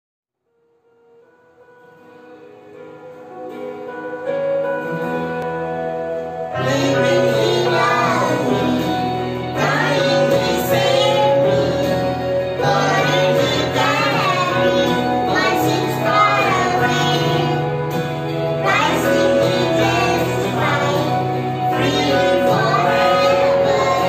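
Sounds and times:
electronic keyboard chords: 0:01.1 - 0:24.0
girl and woman singing: 0:06.6 - 0:17.7, 0:18.6 - 0:24.0.

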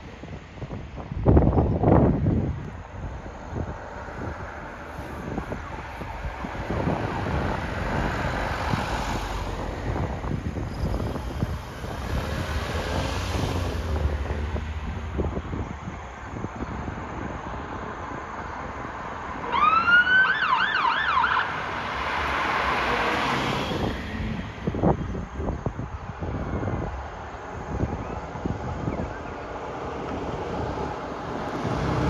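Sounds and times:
cars passing road noise: 0:00.0 - 0:32.0
fire engine siren: 0:04.9 - 0:08.4, 0:19.4 - 0:21.8.

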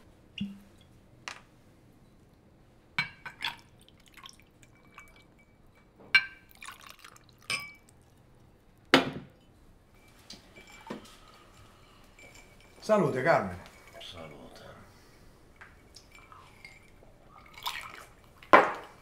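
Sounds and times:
whisky pouring over ice: 0:03.3 - 0:05.4, 0:06.4 - 0:08.2, 0:15.8 - 0:19.0
glass clinks and knocks: 0:10.6 - 0:11.2.

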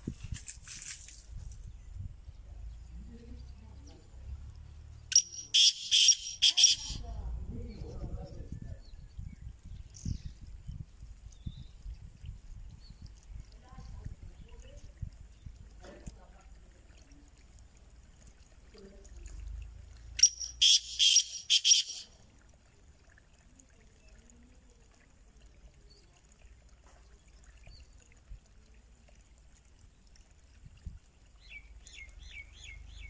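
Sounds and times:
bird calling harsh notes: 0:05.1 - 0:07.0, 0:20.2 - 0:22.1
small bird chirping: 0:05.1 - 0:07.9, 0:20.2 - 0:22.1.

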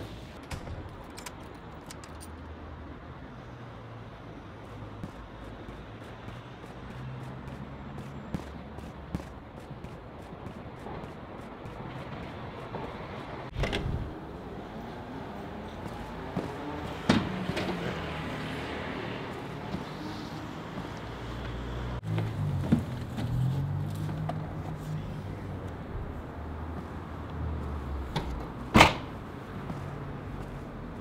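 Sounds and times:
car tailgate slamming: 0:28.7 - 0:29.2.

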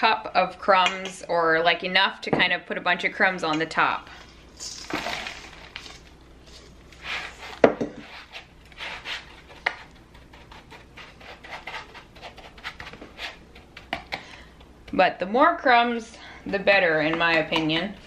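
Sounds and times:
utensil scraping crumbs: 0:04.6 - 0:13.9.

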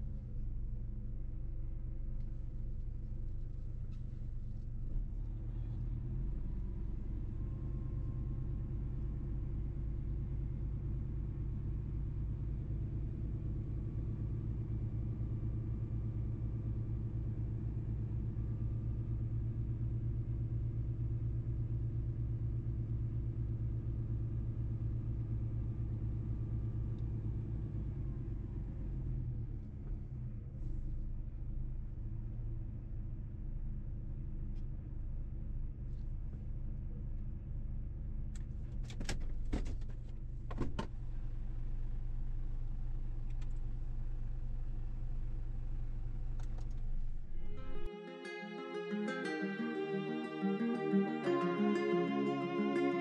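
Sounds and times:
truck diesel engine droning: 0:00.0 - 0:30.9, 0:46.9 - 0:53.0.

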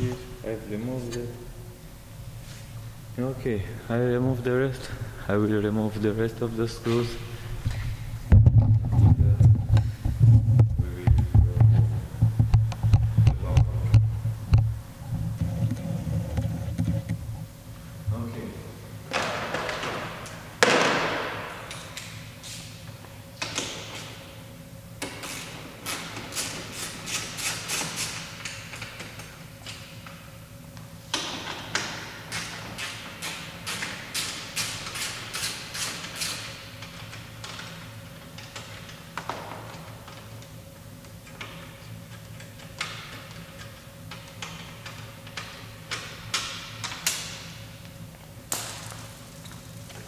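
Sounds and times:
steady low hum: 0:00.0 - 0:50.0
hand ratchet clicking: 0:32.3 - 0:37.6.

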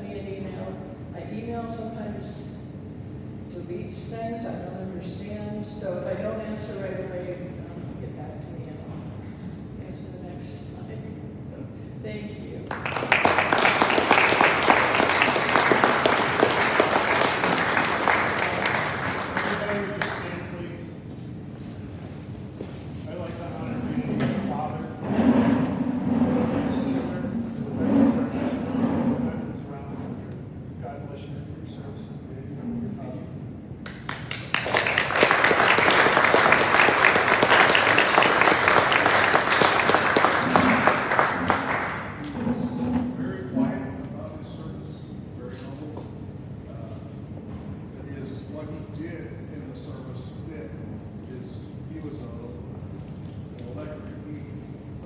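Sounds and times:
audience applauding: 0:12.7 - 0:20.5, 0:33.8 - 0:42.5.

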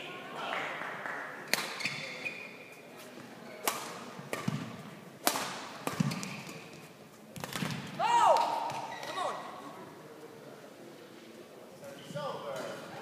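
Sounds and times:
rackets striking shuttlecock: 0:03.6 - 0:06.7.

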